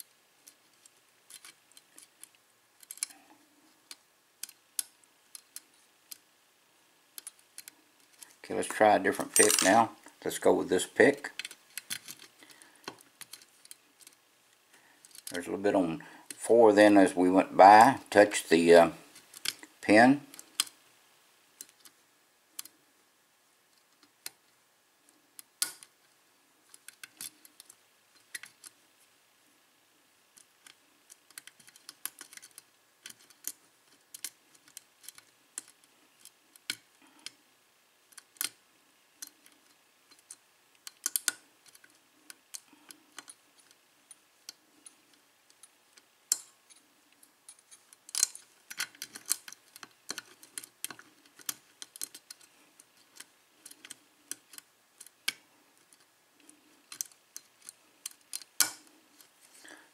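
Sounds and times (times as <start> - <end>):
lock pick clicking and scraping: 0.0 - 6.2, 7.2 - 8.4, 11.2 - 14.2, 15.0 - 15.3, 25.4 - 26.0, 26.7 - 28.8, 30.3 - 37.4, 38.1 - 38.6, 39.2 - 59.8.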